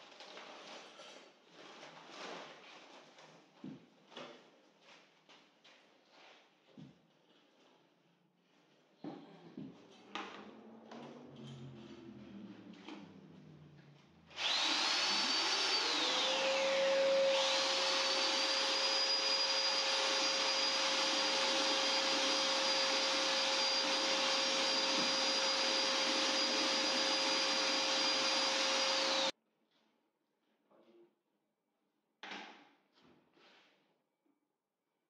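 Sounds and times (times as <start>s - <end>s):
electric paddle mixer whining: 14.4s - 29.3s.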